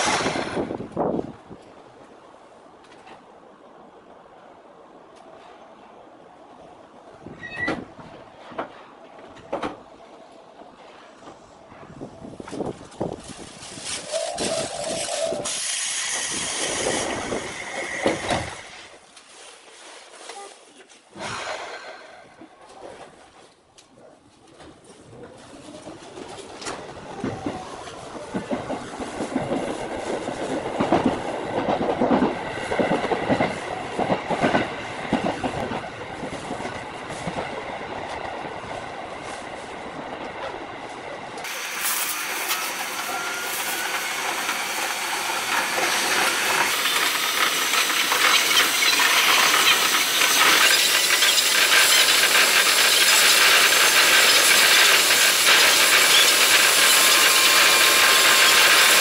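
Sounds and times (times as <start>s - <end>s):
train wheels clattering over rail joints: 0.0s - 1.3s, 26.3s - 38.5s, 41.4s - 59.0s
steady hiss: 13.8s - 19.0s.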